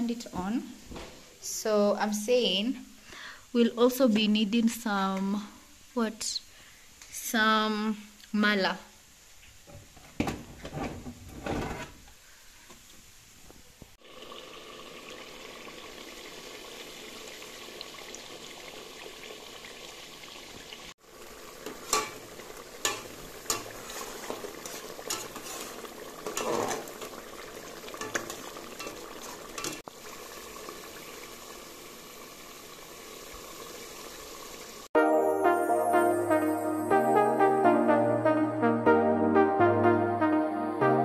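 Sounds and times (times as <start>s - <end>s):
sauce sizzling and bubbling: 13.9s - 35.0s.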